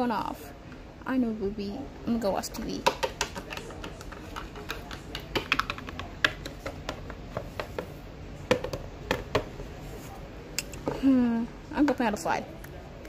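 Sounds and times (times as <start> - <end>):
plastic toys tapping on wooden table: 2.8 - 7.9, 8.5 - 9.5.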